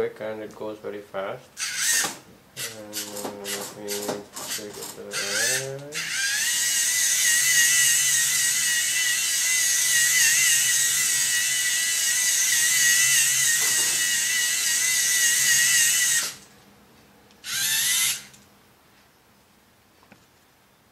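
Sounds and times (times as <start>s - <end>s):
toy motor and gears whining: 1.6s - 16.5s, 17.4s - 18.4s.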